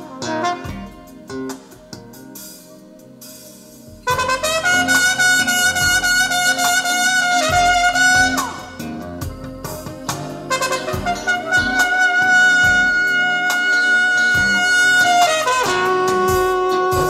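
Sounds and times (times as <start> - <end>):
jazz horn holding high note: 0.0 - 1.8, 4.0 - 17.0
low bass notes: 3.9 - 17.0.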